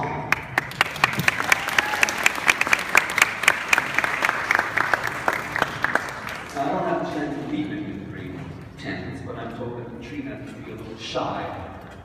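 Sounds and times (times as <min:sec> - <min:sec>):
audience applauding: 0:00.3 - 0:06.9.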